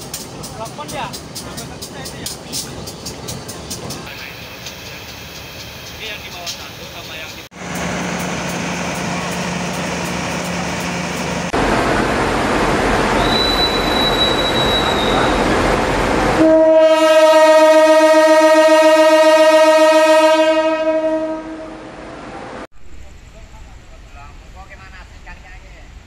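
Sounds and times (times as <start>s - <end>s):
locomotive engine: 0.0s - 16.5s
locomotive horn blast: 16.3s - 22.3s.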